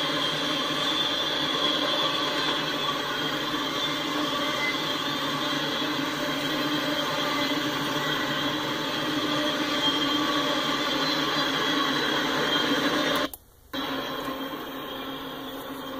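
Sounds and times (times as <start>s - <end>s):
freight train wheels rumbling on rail: 0.0s - 15.9s.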